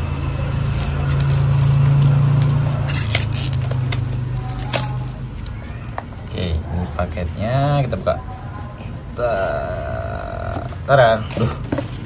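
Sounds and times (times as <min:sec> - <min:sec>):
plastic wrap crinkling: 0:00.4 - 0:06.0.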